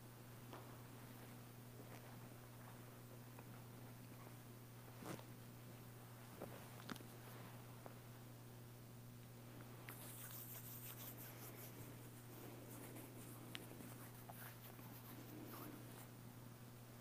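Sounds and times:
low electrical hum: 0.0s - 17.0s
cloth rustling and rubbing: 4.9s - 5.3s, 10.0s - 16.1s.

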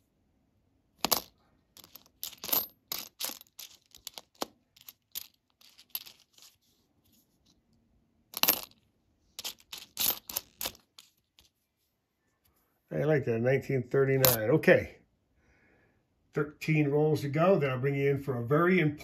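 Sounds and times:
coins clicking and clinking: 1.0s - 6.6s, 8.3s - 8.8s, 9.4s - 11.5s.

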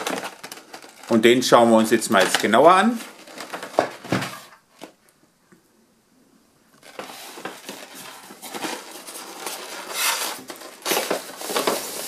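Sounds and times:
cardboard and foam scraping: 6.8s - 12.0s.

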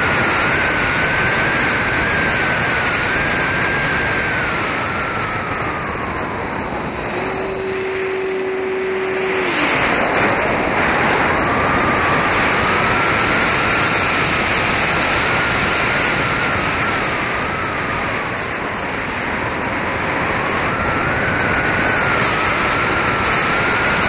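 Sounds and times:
electric motor and propeller whine: 0.0s - 24.0s
wind rushing over microphone: 0.0s - 24.0s.

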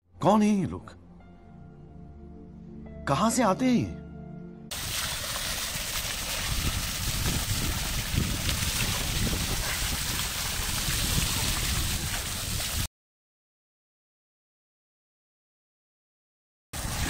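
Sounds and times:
water gushing and splashing: 4.7s - 12.9s, 16.8s - 17.0s.

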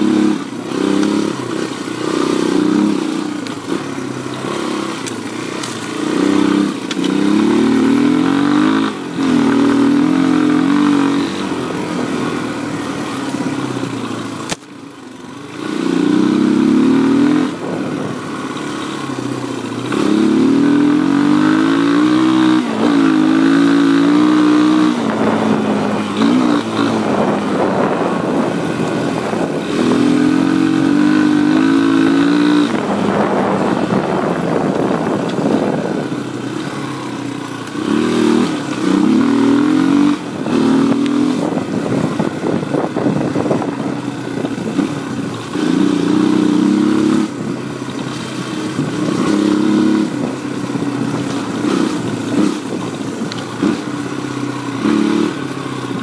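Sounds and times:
dirt bike engine revving: 0.0s - 56.0s
sharp click: 14.4s - 14.7s.

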